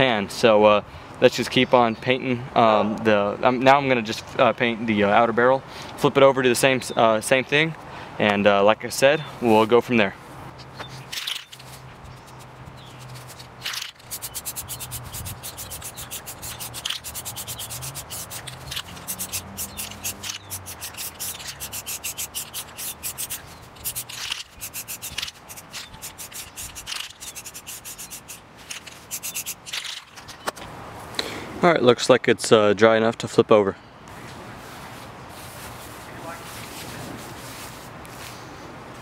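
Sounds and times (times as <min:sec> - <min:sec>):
spray paint can hissing: 0:11.2 - 0:30.0.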